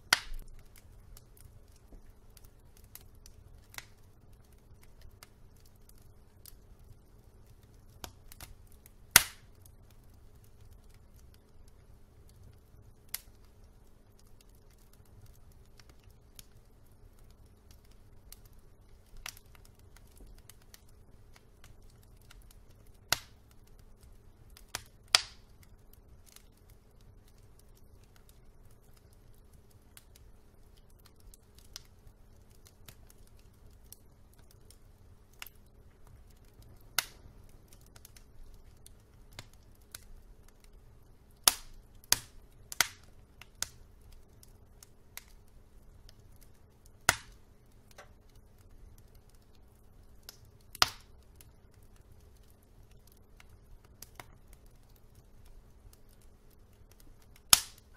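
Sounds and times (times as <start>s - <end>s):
faint low rumble: 0.0s - 57.9s
logs crackling and popping in fire: 0.0s - 57.9s.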